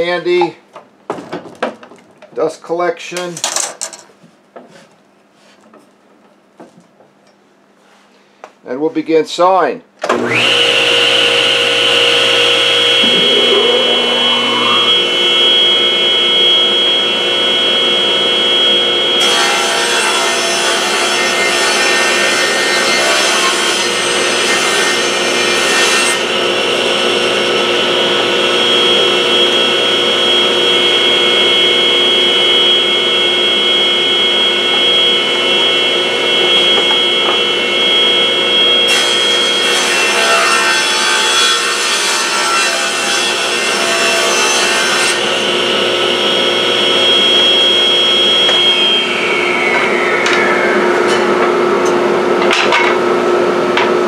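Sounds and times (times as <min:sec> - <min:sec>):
machine whine: 0:10.1 - 0:25.4, 0:26.1 - 0:39.8, 0:45.0 - 0:53.9
saw blade cutting wood: 0:10.2 - 0:15.8, 0:19.2 - 0:27.2, 0:46.7 - 0:52.8.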